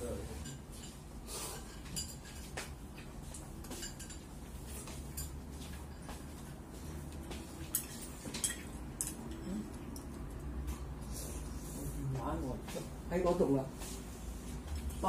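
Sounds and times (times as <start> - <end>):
chopsticks clinking on porcelain bowls: 0.2 - 11.0.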